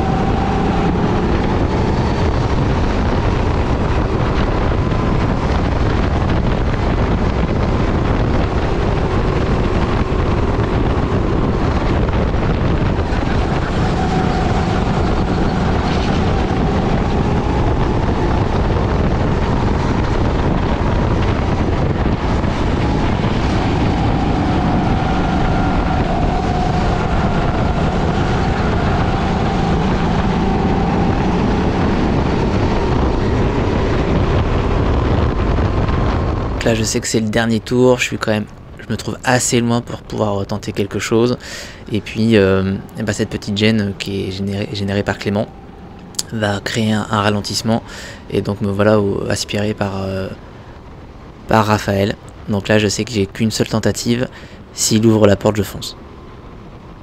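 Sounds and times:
go-kart engine running: 0:00.0 - 0:36.4
wind noise on microphone: 0:00.0 - 0:57.0.

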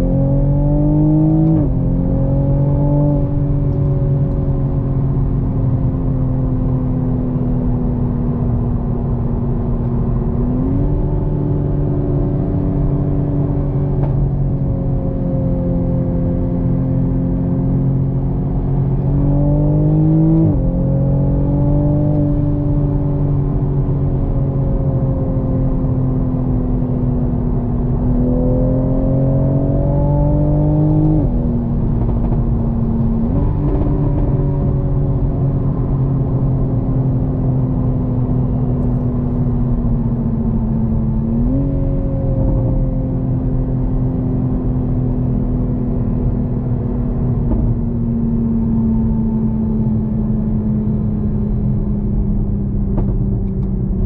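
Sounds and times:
car engine from inside cabin: 0:00.0 - 0:54.0
tyre and road noise: 0:51.3 - 0:54.0.

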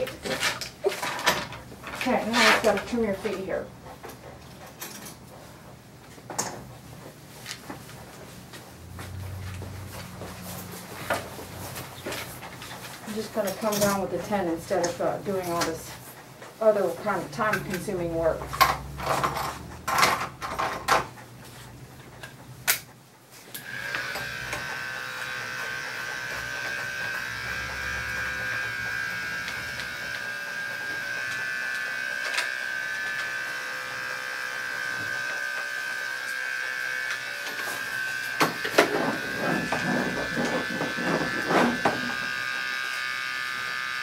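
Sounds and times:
electric clipper humming: 0:23.5 - 0:44.0.

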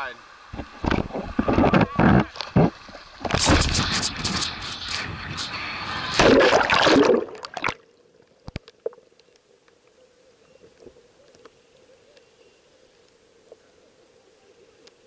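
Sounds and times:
water rushing and splashing: 0:00.0 - 0:08.9
faint underwater hum: 0:00.0 - 0:15.0
light ticks: 0:08.5 - 0:10.0, 0:14.8 - 0:15.0.

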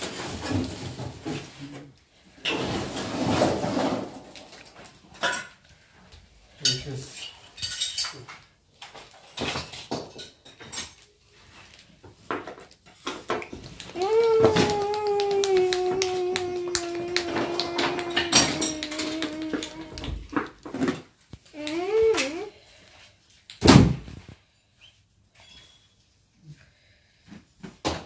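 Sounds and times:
hard objects clattering: 0:12.1 - 0:21.2.

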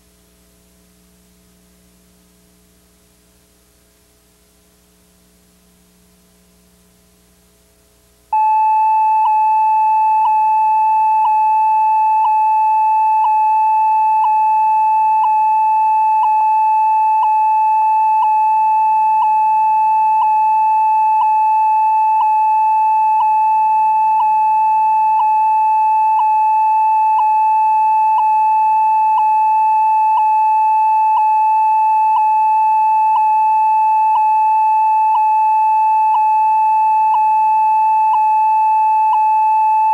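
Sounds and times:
faint hum: 0:00.0 - 0:39.9
steady electronic test tone: 0:08.3 - 0:39.9.

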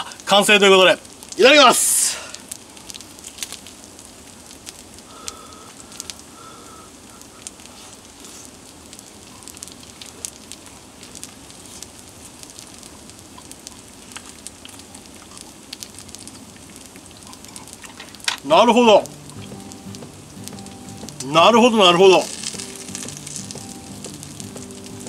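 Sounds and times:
steak sizzling on salt plate: 0:17.2 - 0:25.0.

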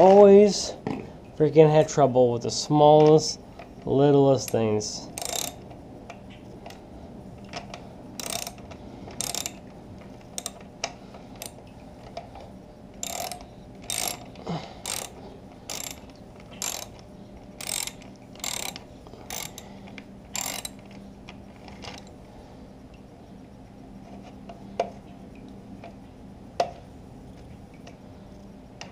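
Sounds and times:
ratchet pawl clicks: 0:04.4 - 0:05.7, 0:07.5 - 0:10.7, 0:13.0 - 0:19.7, 0:20.3 - 0:21.0.

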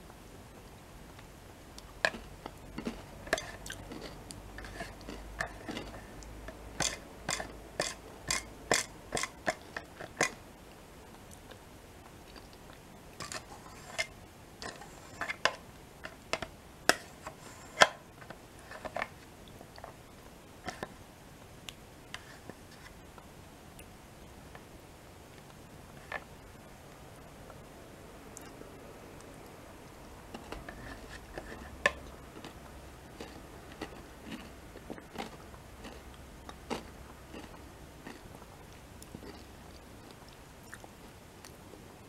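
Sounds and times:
crunchy chewing: 0:01.8 - 0:10.4, 0:12.2 - 0:15.4, 0:29.9 - 0:41.6.

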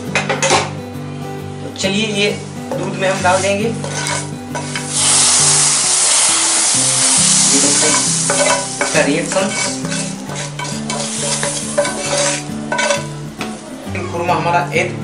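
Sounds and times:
wooden spatula scraping a pan: 0:02.8 - 0:04.9, 0:07.5 - 0:13.1
hot food sizzling in milk: 0:03.0 - 0:13.1.

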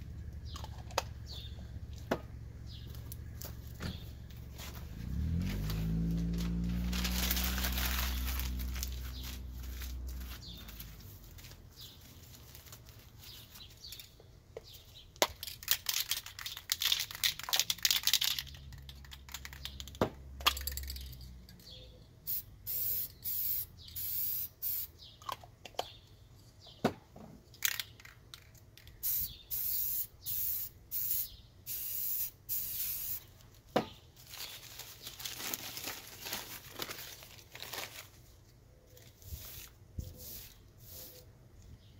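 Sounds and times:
spray paint can hissing: 0:22.3 - 0:24.9, 0:29.0 - 0:33.3, 0:39.3 - 0:41.2.

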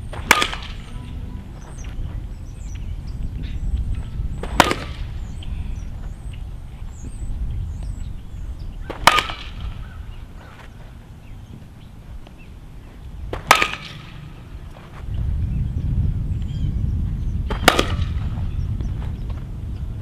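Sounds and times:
bat hitting ball: 0:00.1 - 0:01.0, 0:04.4 - 0:05.4, 0:08.9 - 0:09.8, 0:13.3 - 0:14.8, 0:17.5 - 0:18.5.

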